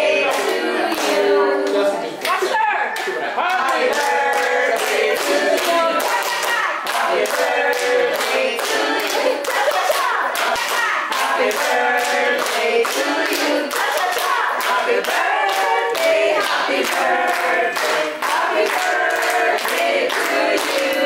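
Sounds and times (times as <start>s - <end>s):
group of people singing: 0.0s - 2.2s, 3.4s - 21.0s
rhythmic hand clapping: 0.0s - 21.0s.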